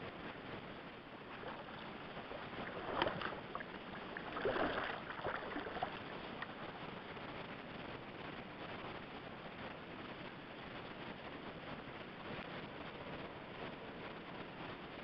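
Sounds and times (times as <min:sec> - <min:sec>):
steady hiss: 0:00.0 - 0:15.0
water splashing and sloshing: 0:01.1 - 0:06.8.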